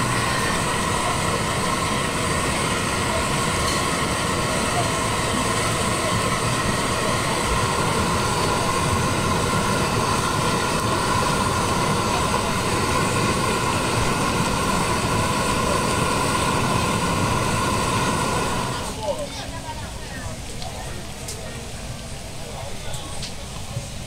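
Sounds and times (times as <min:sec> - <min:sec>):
mechanical drone with whining tones: 0:00.0 - 0:19.0.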